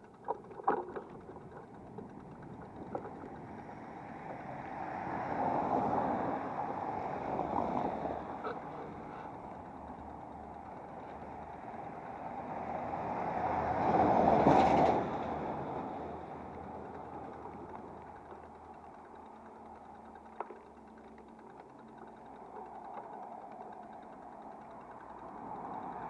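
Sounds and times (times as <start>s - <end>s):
cars passing by: 2.8s - 18.4s, 22.8s - 26.0s.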